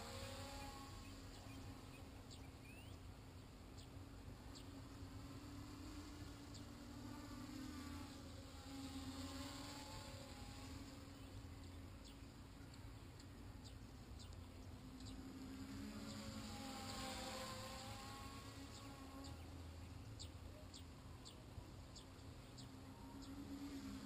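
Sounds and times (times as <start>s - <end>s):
swallows chirping: 0.0s - 4.9s, 9.3s - 24.0s
drone propellers buzzing: 0.0s - 24.0s.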